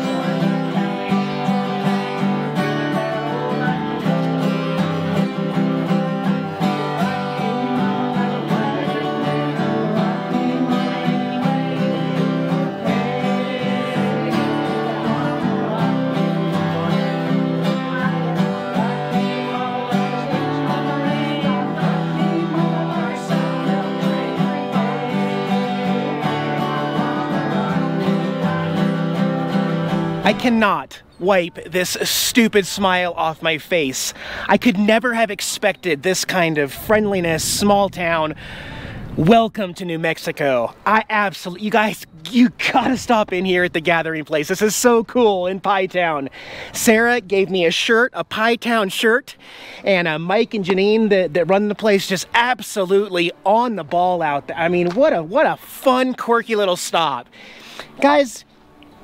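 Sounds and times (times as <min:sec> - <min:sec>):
bluegrass acoustic guitar music: 0:00.0 - 0:59.0.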